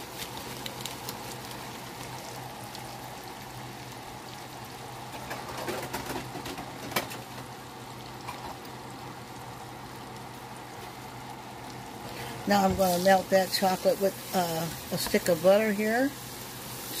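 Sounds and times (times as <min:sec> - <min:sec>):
butter bubbling and sizzling: 0:00.0 - 0:17.0
small crackling ticks: 0:00.2 - 0:03.0.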